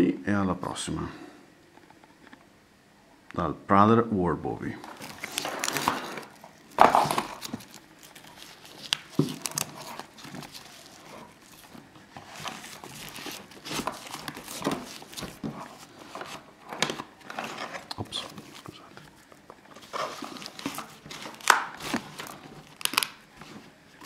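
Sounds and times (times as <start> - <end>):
nylon sheath rustling: 4.8 - 24.0.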